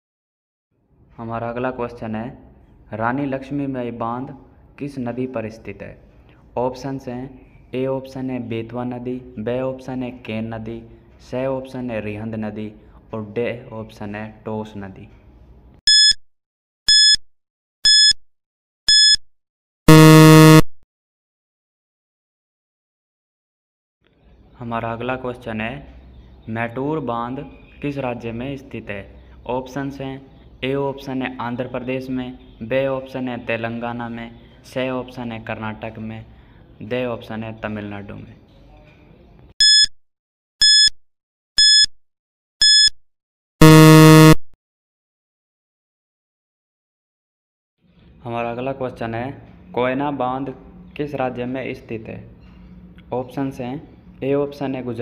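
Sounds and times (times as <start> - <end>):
short high-pitched beeps: 15.9 - 16.2, 16.9 - 17.2, 17.8 - 18.2, 18.9 - 19.2, 19.9 - 20.8, 39.6 - 40.0, 40.6 - 41.0, 41.6 - 41.9, 42.6 - 43.0, 43.6 - 44.5
low buzzer tone: 16.9 - 17.2, 17.9 - 18.2, 18.9 - 19.2, 19.9 - 20.8, 39.6 - 39.9, 40.6 - 41.0, 41.6 - 41.9, 42.6 - 43.0, 43.6 - 44.5
low buzz: 19.9 - 20.7, 43.6 - 44.4.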